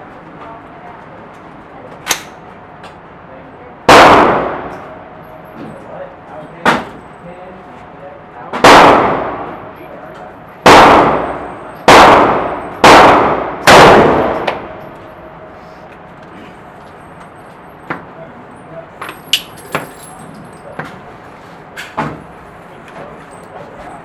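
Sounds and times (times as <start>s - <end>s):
rifle shots echoing: 3.9s - 4.8s, 8.6s - 9.6s, 10.6s - 14.7s.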